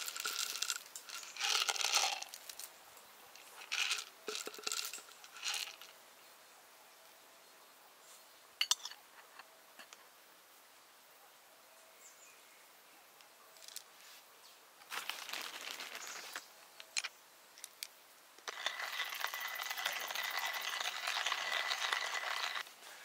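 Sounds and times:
coffee grinder grinding beans: 0:00.0 - 0:02.6, 0:03.6 - 0:05.9, 0:18.4 - 0:22.6
metal grinder parts rattling scrape: 0:18.5 - 0:22.6.

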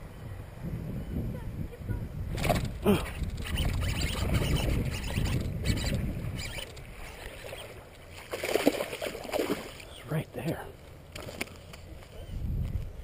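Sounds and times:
fish splashing in water: 0:06.4 - 0:09.9.

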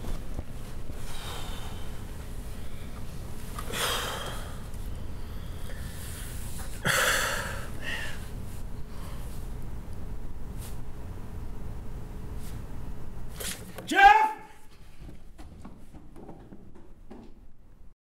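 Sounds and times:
low room hum: 0:00.0 - 0:18.0
man breathing out heavily: 0:00.9 - 0:03.0, 0:03.6 - 0:08.3.

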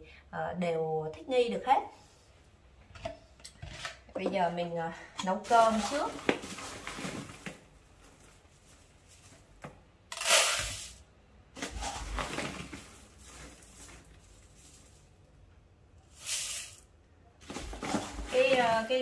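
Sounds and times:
plastic bag crinkling: 0:05.4 - 0:09.5, 0:11.6 - 0:15.3, 0:17.4 - 0:19.0
dry rice grains rustling: 0:11.6 - 0:15.4, 0:16.1 - 0:16.9.

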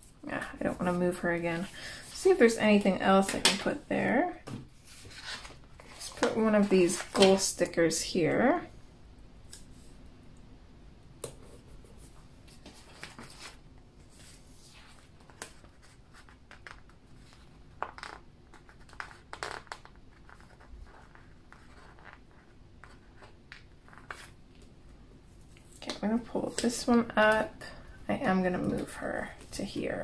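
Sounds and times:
pages rustling: 0:04.8 - 0:07.4, 0:12.4 - 0:24.4.

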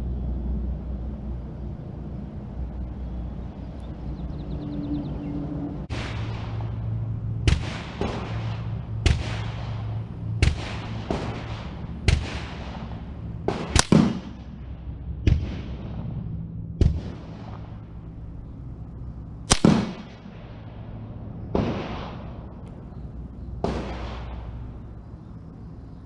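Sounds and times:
steady low hum: 0:00.0 - 0:26.0
rifle gunshots: 0:05.9 - 0:16.0, 0:19.5 - 0:20.9, 0:21.5 - 0:22.6, 0:23.6 - 0:24.8.

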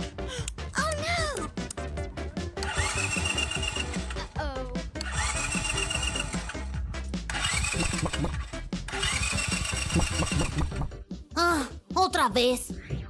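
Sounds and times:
background music: 0:00.0 - 0:13.0
electric motor whine and warble: 0:02.6 - 0:04.3, 0:05.0 - 0:10.6.

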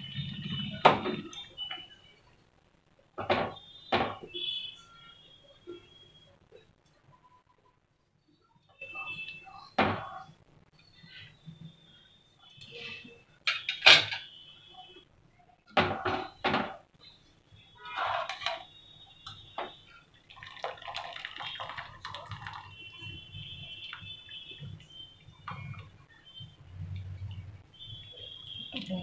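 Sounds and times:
water splashing and dripping: 0:20.2 - 0:24.9.

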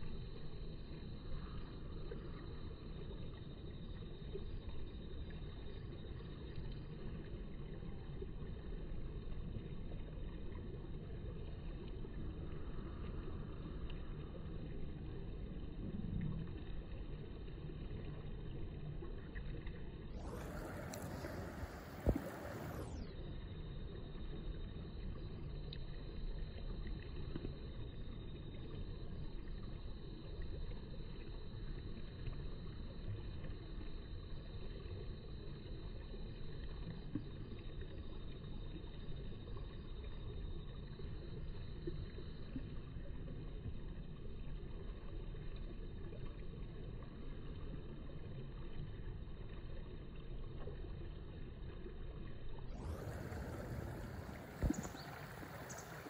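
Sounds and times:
low outdoor background rumble: 0:00.0 - 0:56.0.

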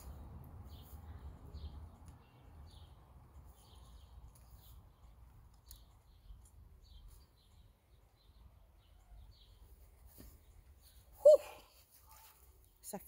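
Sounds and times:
faint bird chirps: 0:05.7 - 0:12.5.

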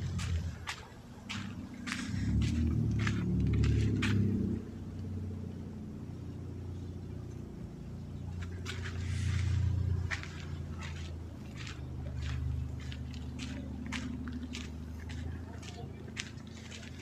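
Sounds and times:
footsteps: 0:00.0 - 0:04.6, 0:08.3 - 0:17.0
road traffic rumble: 0:00.0 - 0:17.0.

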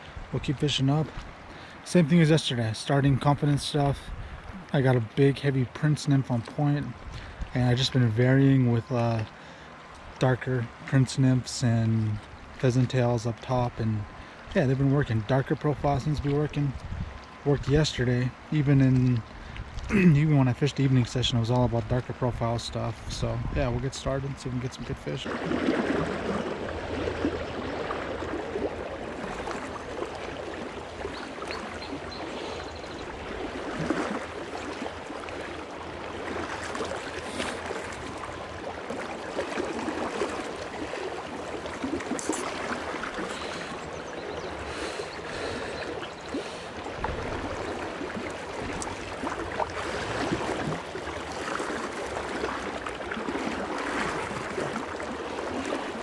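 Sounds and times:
river water rushing over rocks: 0:25.3 - 0:56.0.

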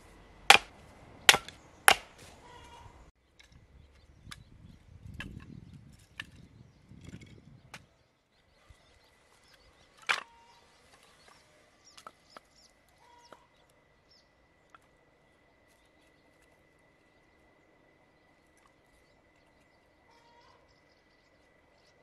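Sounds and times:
firewood knocking on wood: 0:00.5 - 0:00.7.

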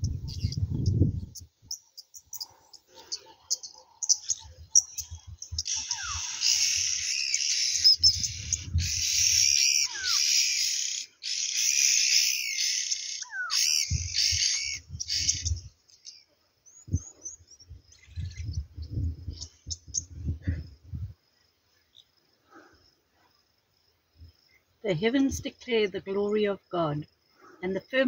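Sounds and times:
shrill insect chirring: 0:00.0 - 0:16.3.

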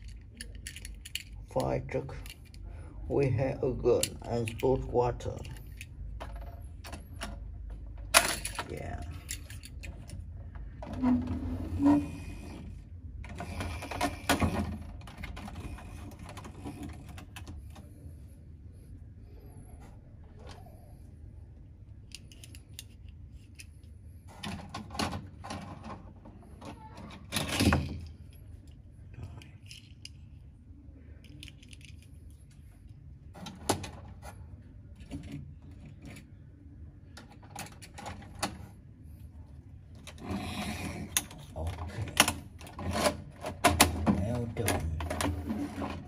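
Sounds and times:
plastic toys clicking and knocking: 0:00.0 - 0:02.6, 0:03.9 - 0:10.9, 0:22.0 - 0:23.7, 0:31.2 - 0:32.4.

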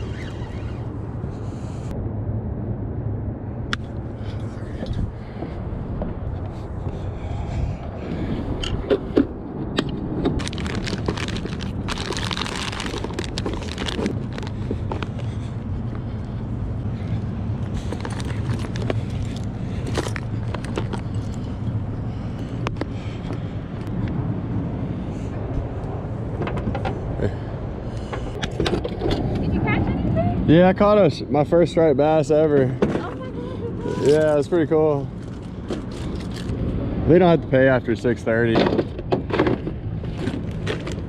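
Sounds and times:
street traffic hum: 0:00.0 - 0:41.0
fishing gear rattling: 0:10.3 - 0:15.4, 0:17.6 - 0:21.6.

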